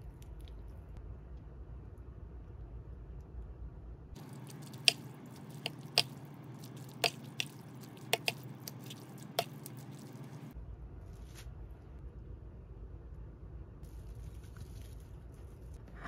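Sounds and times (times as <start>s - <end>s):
tongs clicking against bowl: 4.2s - 10.4s
wet squishing of noodles: 4.2s - 10.6s.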